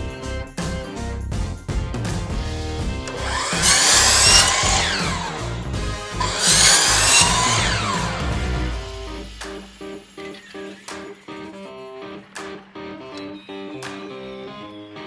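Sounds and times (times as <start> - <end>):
background music: 0.0 - 15.0
miter saw cutting foam: 3.0 - 9.3.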